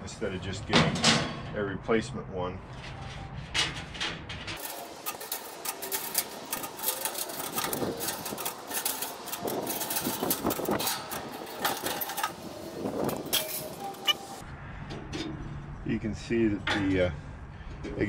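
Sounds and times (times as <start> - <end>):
grill parts clattering: 3.5 - 15.4.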